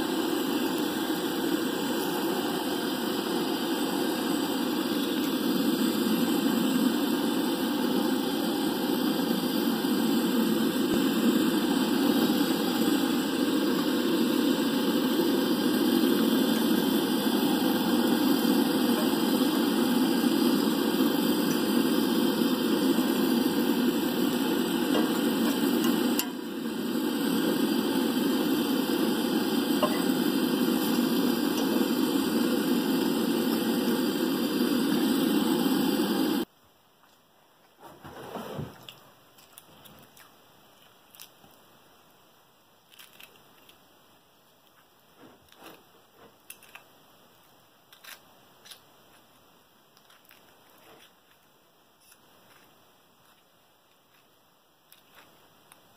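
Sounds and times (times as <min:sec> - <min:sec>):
camp stove burner rushing: 0:00.0 - 0:36.5.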